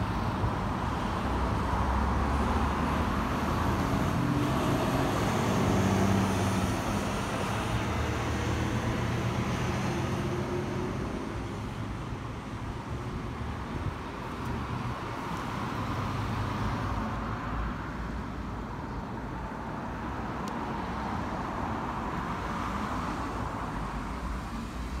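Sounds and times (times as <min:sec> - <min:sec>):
cars driving past: 0:00.0 - 0:18.3.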